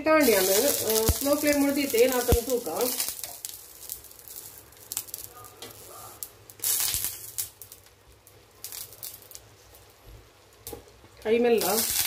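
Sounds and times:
leaf parcel sizzling: 0.0 - 12.0
leaf crinkling: 0.2 - 5.4.

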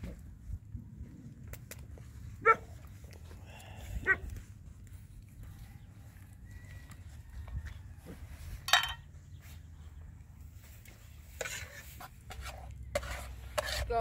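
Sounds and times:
metal spatula scraping pan: 11.2 - 14.0.

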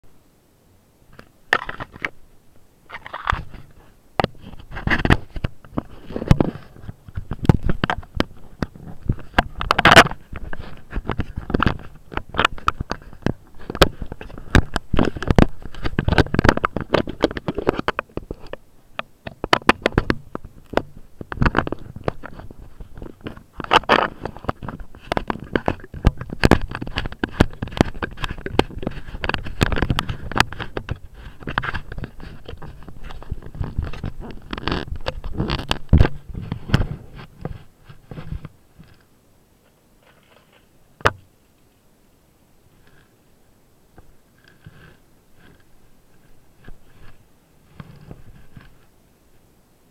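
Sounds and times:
scraping against camera microphone: 1.1 - 2.2, 2.9 - 41.2, 42.7 - 43.2, 44.0 - 49.0
handling clicks and knocks: 2.9 - 39.1.

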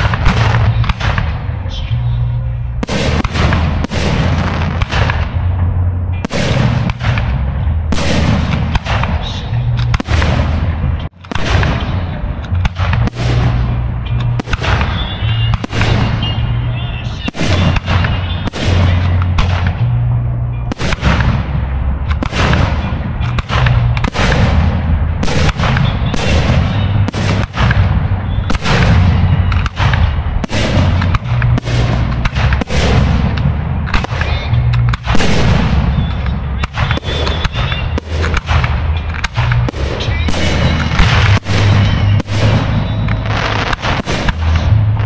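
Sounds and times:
fireworks bursting: 0.0 - 45.0
music with deep bassline: 0.0 - 45.0.

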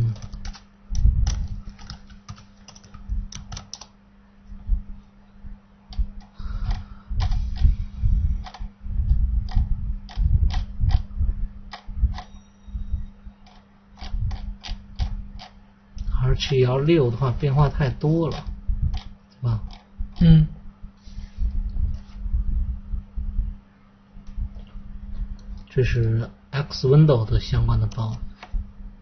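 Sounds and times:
computer keyboard clicking: 0.0 - 4.0, 8.4 - 8.6, 9.5 - 11.0, 13.4 - 16.6, 18.3 - 19.1
steady low hum: 0.0 - 29.0.

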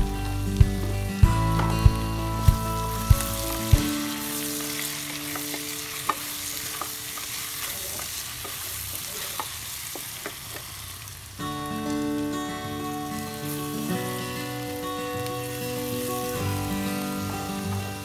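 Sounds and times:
background music with steady beat: 0.0 - 4.5
meat sizzling in a wok: 0.0 - 18.0
spatula stirring: 2.5 - 10.7.

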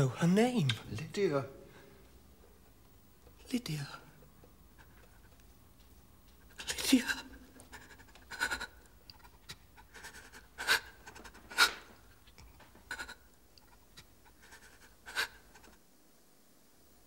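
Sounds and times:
person breathing heavily: 6.4 - 11.9.

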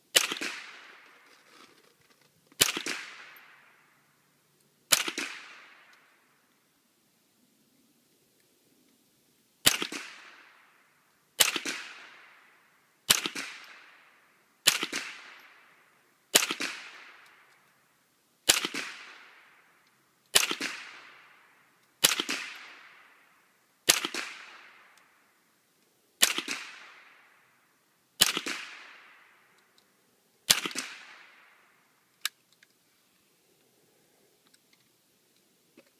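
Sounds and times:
rifle shots with echo: 0.1 - 1.1, 2.6 - 4.2, 4.9 - 6.5, 9.6 - 17.6, 18.4 - 25.4, 26.2 - 29.6, 30.4 - 32.1.

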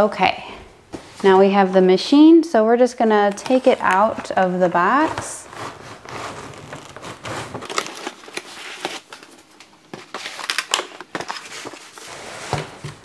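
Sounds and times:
cardboard rustling and scraping: 3.3 - 13.0.

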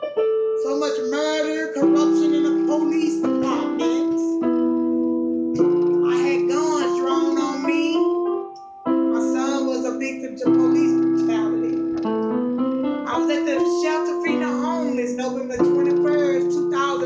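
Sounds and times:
electronic keyboard gospel chords: 0.0 - 17.0
woman singing: 0.6 - 4.4, 6.0 - 8.0, 9.2 - 11.7, 13.1 - 17.0.

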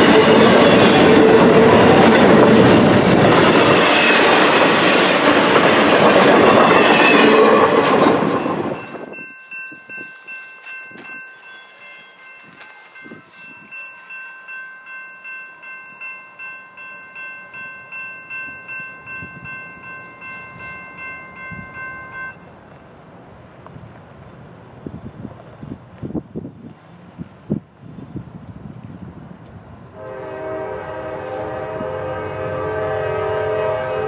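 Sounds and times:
railroad crossing bell ringing: 0.0 - 22.5.

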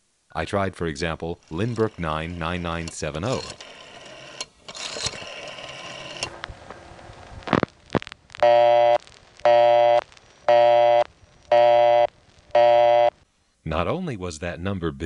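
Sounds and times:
telephone busy tone: 8.4 - 13.2.

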